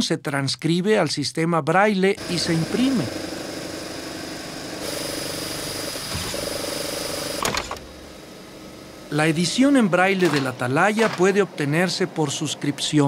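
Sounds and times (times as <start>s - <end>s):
embossing press punching chatter: 9.1s - 13.0s.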